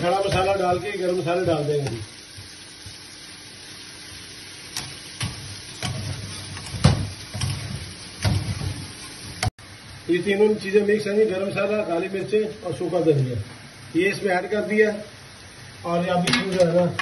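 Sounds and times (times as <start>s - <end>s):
meat sizzling in a pan: 0.0s - 17.0s
metal spatula scraping a pan: 4.8s - 9.2s.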